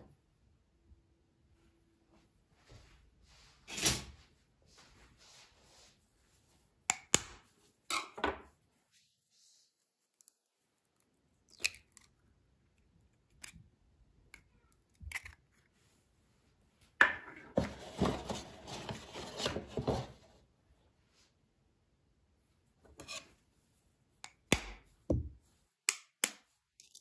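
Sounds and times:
eggshell crunching: 0:11.0 - 0:13.6.

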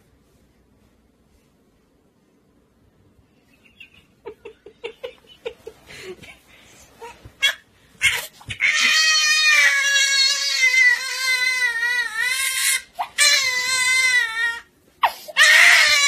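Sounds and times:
infant wailing: 0:07.4 - 0:14.7, 0:15.3 - 0:16.0.

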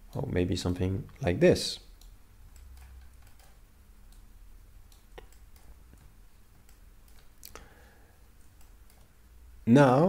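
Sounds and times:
low room hum: 0:00.0 - 0:10.0
computer mouse clicks: 0:02.0 - 0:07.7, 0:08.4 - 0:09.2.

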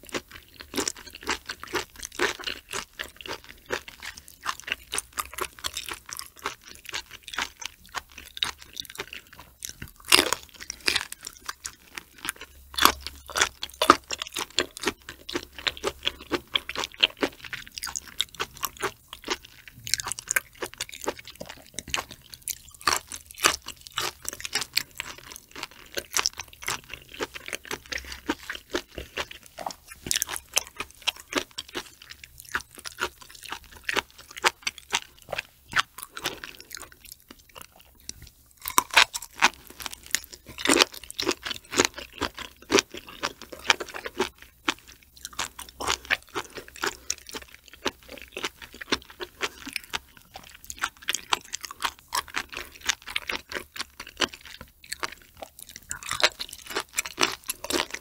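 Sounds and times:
wet crackling chewing: 0:00.0 - 0:58.0.

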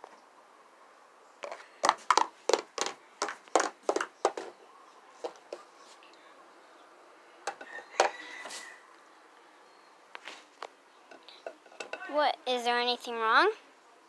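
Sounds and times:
plastic toy tapping on wood: 0:03.6 - 0:04.5.

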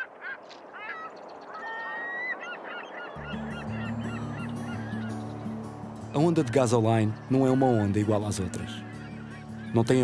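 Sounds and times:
birds calling: 0:00.0 - 0:10.0
low sustained music notes: 0:03.1 - 0:10.0.

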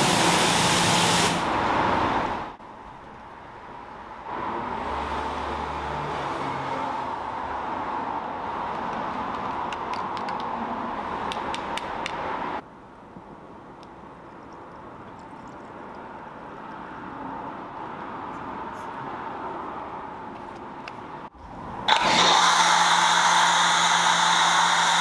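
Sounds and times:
liquid pouring into bottle: 0:14.4 - 0:16.0.

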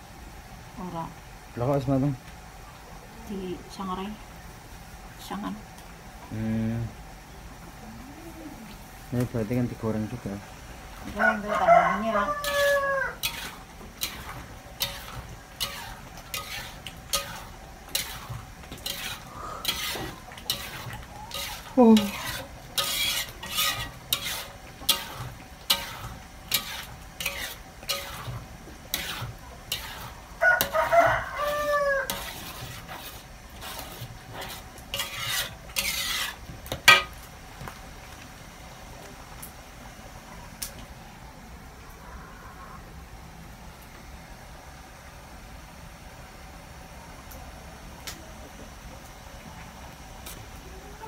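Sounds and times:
metal spatula scraping a wok: 0:11.6 - 0:37.2.

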